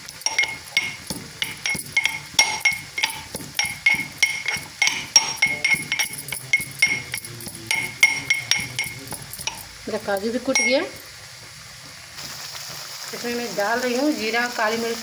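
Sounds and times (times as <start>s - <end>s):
metal pestle pounding in mortar: 0.0s - 9.7s.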